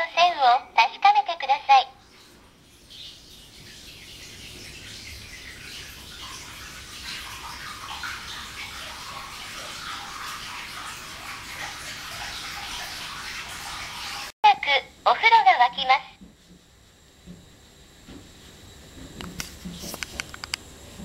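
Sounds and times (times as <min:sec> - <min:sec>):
water pouring into bathtub: 0:02.0 - 0:14.3.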